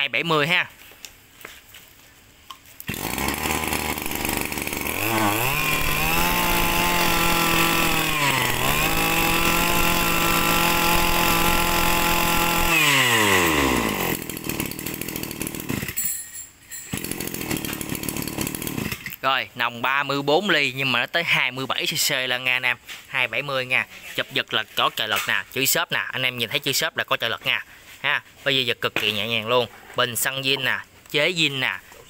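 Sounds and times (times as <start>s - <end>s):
brush cutter engine revving: 2.8s - 16.0s, 16.9s - 19.2s.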